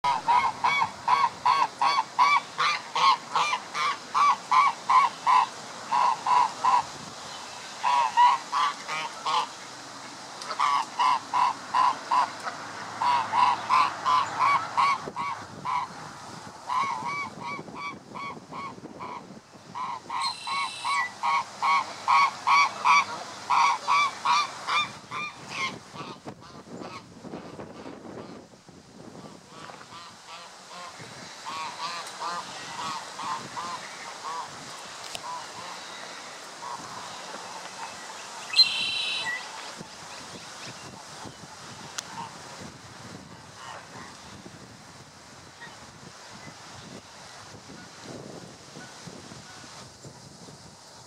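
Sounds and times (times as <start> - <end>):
geese calling: 0.0 - 6.9, 7.8 - 9.6, 10.4 - 15.9, 16.7 - 19.2, 19.8 - 27.0, 29.5 - 41.2.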